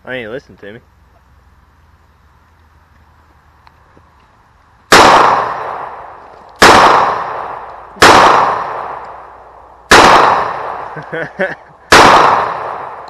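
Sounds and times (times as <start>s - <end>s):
pistol shots with echo: 4.9s - 11.0s, 11.9s - 13.0s.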